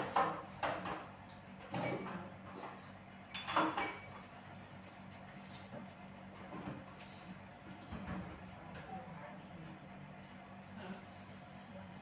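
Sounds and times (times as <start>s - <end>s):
dishes clinking and clattering: 0.0s - 2.7s, 3.3s - 4.4s.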